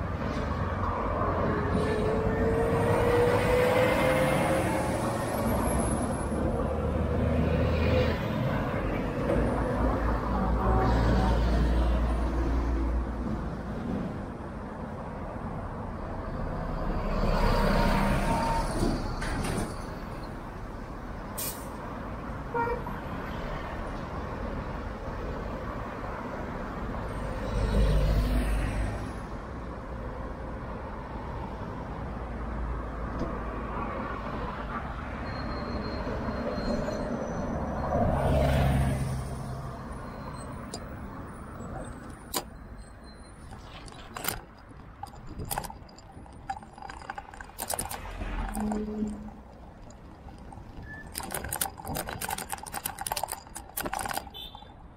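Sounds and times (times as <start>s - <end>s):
vehicles passing: 0.0s - 35.2s, 37.0s - 54.9s
sharp clicks: 43.4s - 54.7s.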